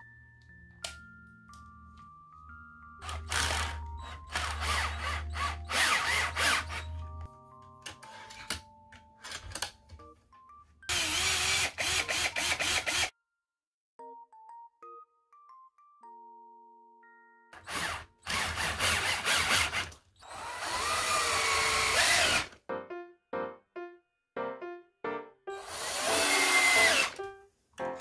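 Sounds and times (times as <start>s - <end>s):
soft glockenspiel-like music: 0.0s - 10.9s, 13.1s - 18.2s
cordless drill driving screws: 3.0s - 7.0s, 10.9s - 13.1s, 17.6s - 22.6s, 25.6s - 27.2s.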